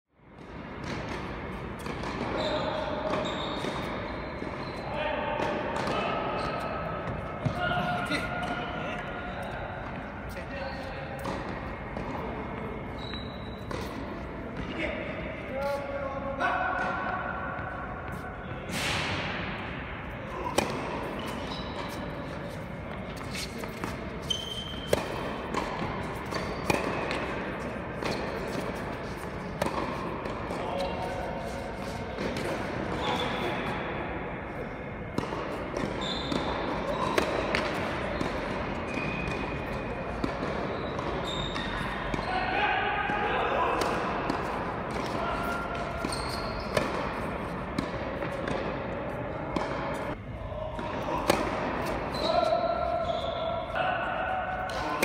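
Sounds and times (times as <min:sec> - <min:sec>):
tennis ball bouncing on court: 0:00.3 - 0:04.8, 0:05.4 - 0:10.2, 0:11.2 - 0:14.8, 0:20.3 - 0:33.7, 0:35.1 - 0:42.3, 0:43.8 - 0:50.2, 0:50.8 - 0:52.1
tennis racquet strikes: 0:00.4 - 0:02.4, 0:13.5 - 0:14.7, 0:18.0 - 0:34.0, 0:35.1 - 0:42.2, 0:43.8 - 0:50.2, 0:50.8 - 0:52.1.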